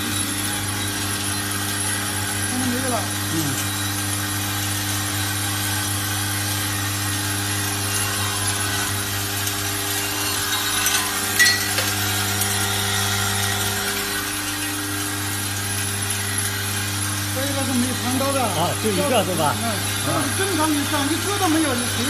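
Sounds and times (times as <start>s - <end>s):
vibratory bowl feeder humming: 0.0s - 22.0s.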